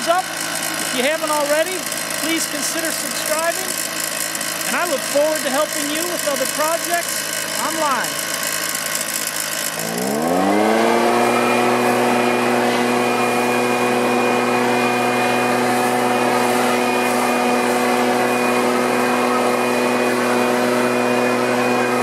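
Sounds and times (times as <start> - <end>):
leaf blower engine at full throttle: 0.0 - 22.0
air rushing from blower nozzle: 9.3 - 22.0.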